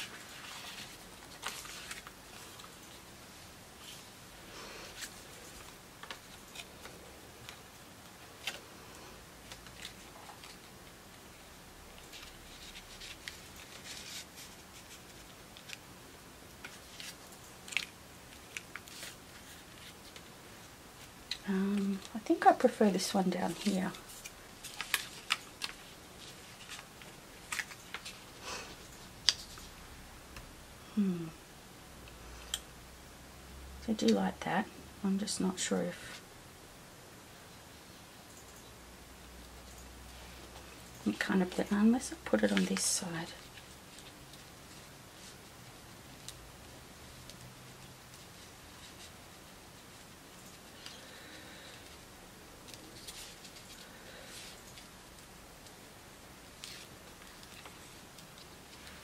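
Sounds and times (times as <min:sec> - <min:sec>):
paper rustling: 0:00.0 - 0:03.1, 0:12.0 - 0:15.8, 0:16.6 - 0:29.8, 0:40.3 - 0:46.4, 0:52.6 - 0:55.8, 0:56.5 - 0:59.0.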